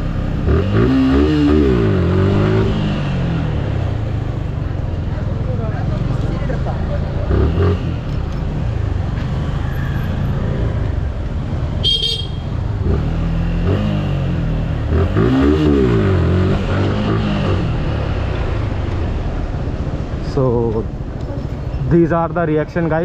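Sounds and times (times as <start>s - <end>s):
motorcycle engine accelerating: 0.0s - 19.6s
horn toot: 11.8s - 12.5s.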